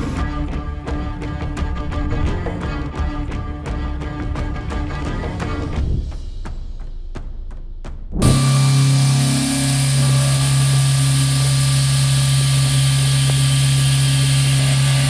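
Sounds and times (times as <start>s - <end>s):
milling machine cutting steel: 8.2s - 15.0s.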